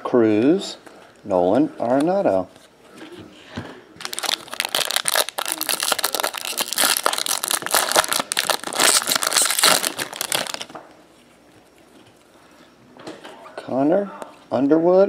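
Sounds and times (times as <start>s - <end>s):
foil wrapper crinkling: 4.0s - 10.8s.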